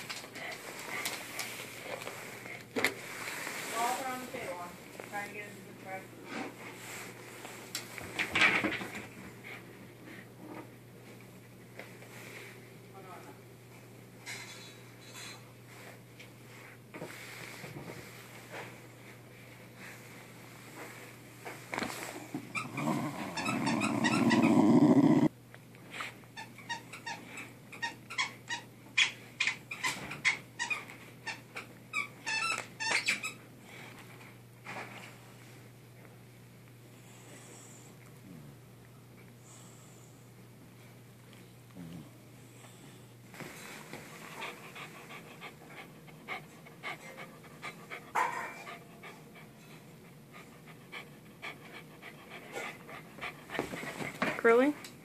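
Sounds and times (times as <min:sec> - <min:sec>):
dog growling: 0:22.3 - 0:25.3
dog chewing ball clicks and squeaks: 0:22.5 - 0:25.2, 0:26.4 - 0:33.4
small dog panting: 0:22.5 - 0:25.3, 0:43.7 - 0:54.7.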